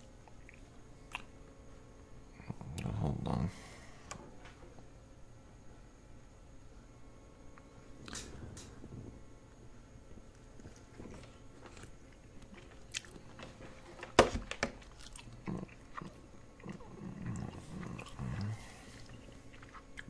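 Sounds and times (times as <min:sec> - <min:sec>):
person biting and chewing: 0:10.6 - 0:13.3, 0:14.8 - 0:20.0.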